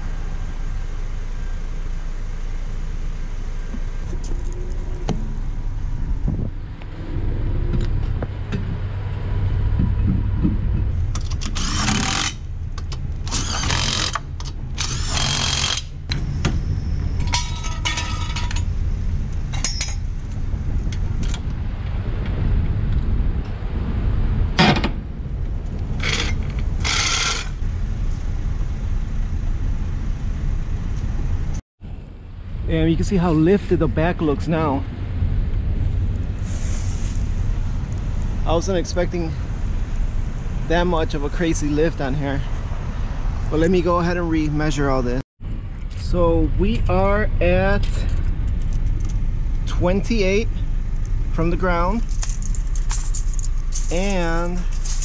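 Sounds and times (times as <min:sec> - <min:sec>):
steady low rumble: 0:00.0 - 0:55.0
lug wrench clicking on nuts: 0:11.1 - 0:15.9, 0:26.0 - 0:27.5
jack hardware clanking: 0:17.2 - 0:18.7, 0:26.0 - 0:27.5.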